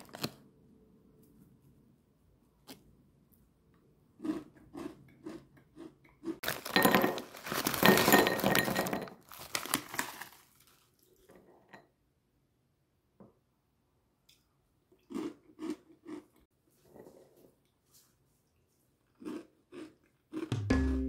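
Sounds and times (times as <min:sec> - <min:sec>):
foil bag rustling: 0:06.4 - 0:08.6, 0:09.2 - 0:10.9
snack pieces clattering into bowl: 0:06.4 - 0:10.8.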